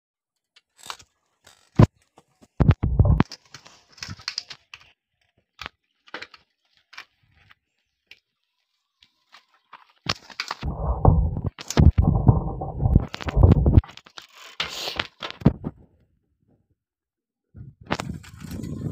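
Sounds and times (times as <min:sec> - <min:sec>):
bumpy rumble of carried phone: 0:02.6 - 0:03.2, 0:10.6 - 0:13.8.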